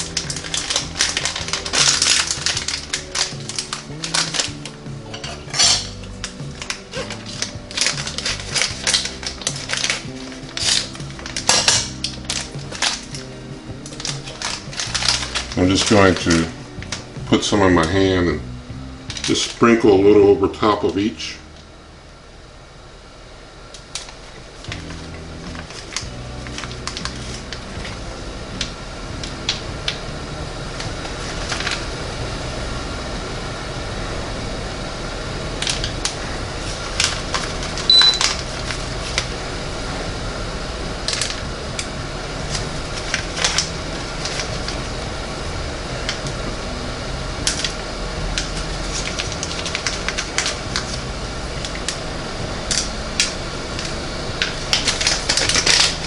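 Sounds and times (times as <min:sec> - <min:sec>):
nuts clicking and foil crinkling: 0:00.0 - 0:18.0, 0:19.1 - 0:19.6, 0:23.8 - 0:30.0, 0:30.8 - 0:31.8, 0:35.6 - 0:39.4, 0:41.0 - 0:45.0, 0:47.4 - 0:52.0, 0:52.6 - 0:56.0
oven fan whirring: 0:00.0 - 0:56.0.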